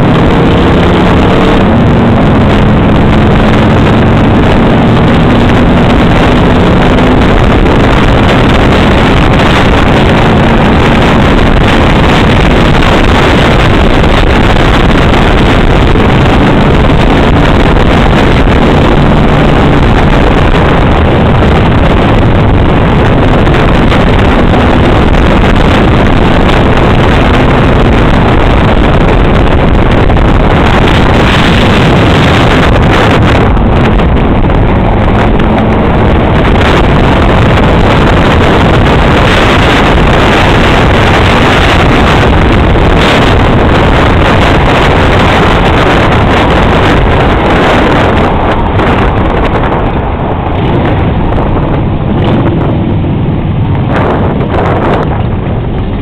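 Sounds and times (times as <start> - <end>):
motorcycle engines droning: 0.0 - 56.0
wind rush on microphone: 0.0 - 56.0.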